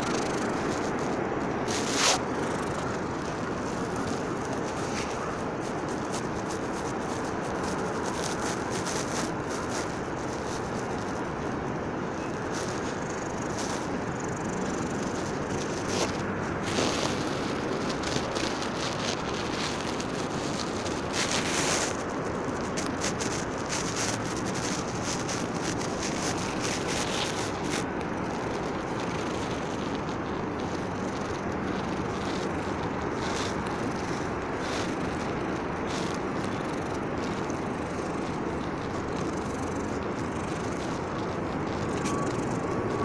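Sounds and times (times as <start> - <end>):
cat purring: 0.0 - 43.0
light rustling: 0.0 - 43.0.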